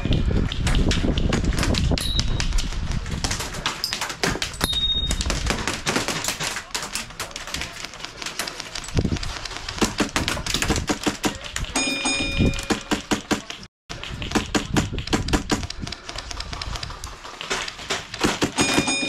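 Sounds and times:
airsoft gunfire: 0:09.7 - 0:11.5.

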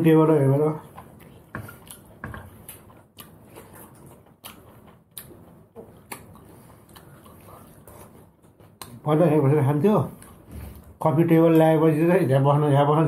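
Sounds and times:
chewing and lip smacks: 0:00.8 - 0:09.0.

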